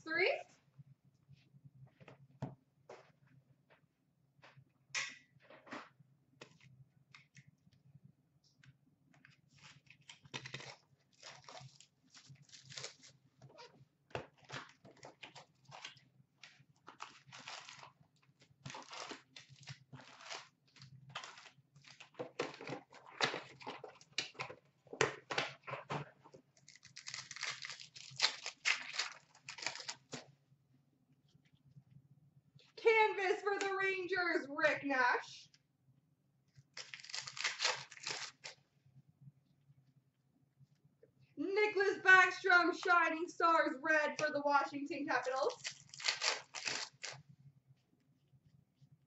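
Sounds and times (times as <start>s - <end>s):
card packs crinkling: 9.5s - 13.2s, 16.8s - 18.0s, 18.6s - 24.4s, 26.6s - 30.2s, 36.8s - 38.6s, 45.2s - 47.2s.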